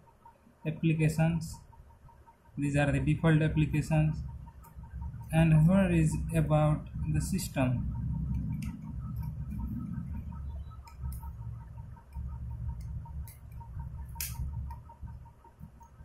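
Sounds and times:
fast even ticking: 0.0 - 16.0
low rumble: 3.0 - 16.0
sharp clicks: 8.0 - 16.0.

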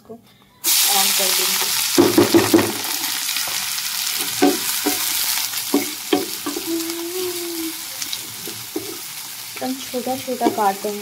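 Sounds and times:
onions sizzling in hot oil: 0.6 - 11.0
wooden spatula scraping pan: 8.1 - 9.1.

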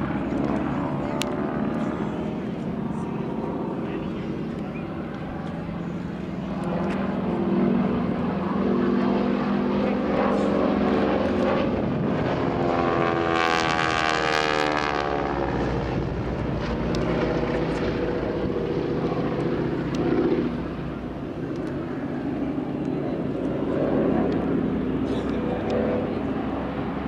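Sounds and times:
propeller aircraft engine droning: 0.0 - 27.0.

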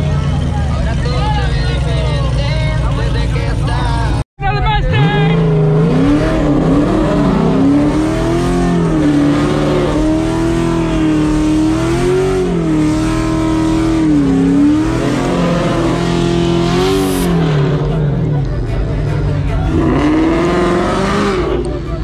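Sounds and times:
car engine revving high: 4.9 - 22.0.

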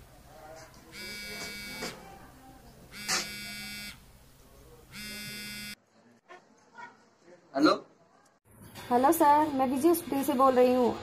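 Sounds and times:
mobile phone ringing: 0.9 - 2.0, 2.9 - 4.0, 4.9 - 5.8.

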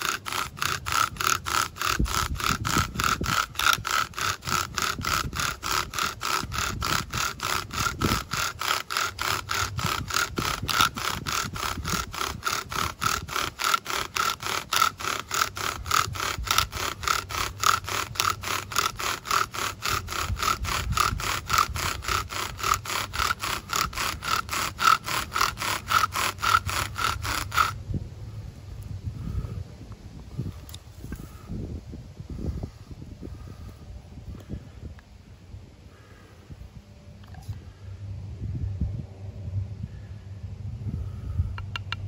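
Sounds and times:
bow drill rasping squeal: 0.0 - 27.8.

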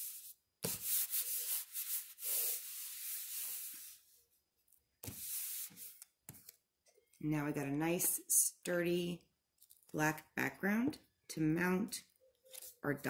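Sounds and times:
hand rubbing paper: 0.0 - 4.0.

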